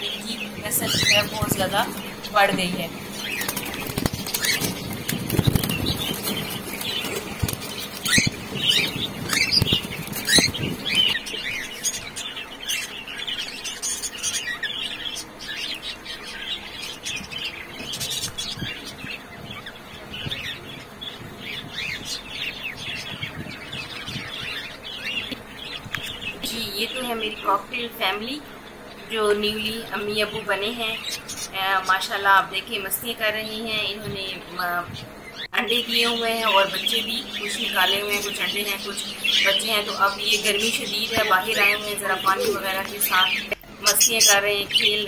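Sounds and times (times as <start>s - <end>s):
wings flapping: 0.5s - 12.2s
cockatiels chirping and whistling: 0.8s - 1.6s, 3.2s - 26.2s.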